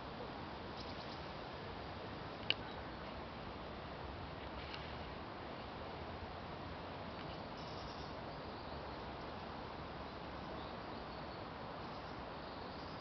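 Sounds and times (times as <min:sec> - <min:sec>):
faint bird chirps: 0:00.8 - 0:01.3, 0:07.3 - 0:09.2, 0:10.1 - 0:13.0.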